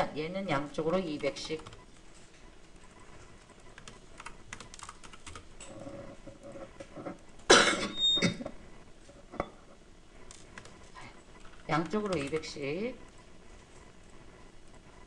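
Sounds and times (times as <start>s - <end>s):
keyboard typing: 0.8s - 6.7s, 10.2s - 14.8s.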